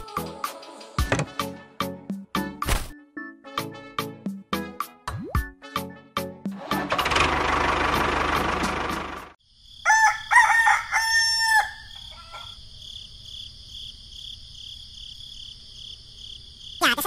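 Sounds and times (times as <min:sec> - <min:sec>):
crickets chirring: 0:09.4 - 0:17.0
rooster crowing: 0:09.8 - 0:12.6.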